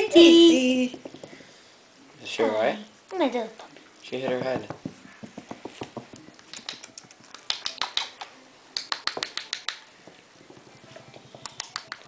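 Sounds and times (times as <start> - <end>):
sharp clicks and taps: 4.2 - 9.8.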